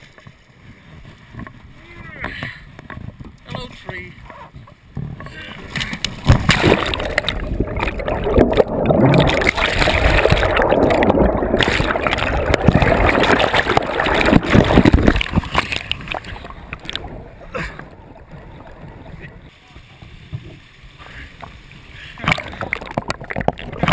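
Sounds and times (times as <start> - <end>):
water splashing and churning: 0.0 - 23.9
muffled underwater gurgling: 5.0 - 21.3.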